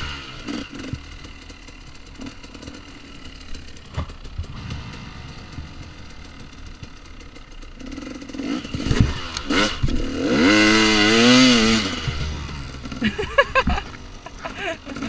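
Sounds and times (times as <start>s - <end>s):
dirt bike engine revving: 0.0s - 15.0s
clattering over rough ground: 1.8s - 7.6s.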